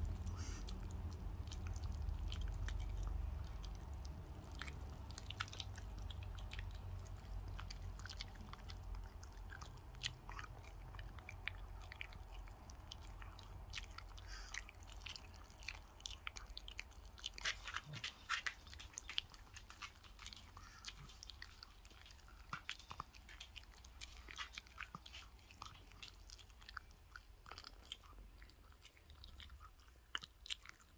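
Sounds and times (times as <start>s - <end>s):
low hum: 0.0s - 14.1s
dog crunching bone: 0.0s - 30.9s.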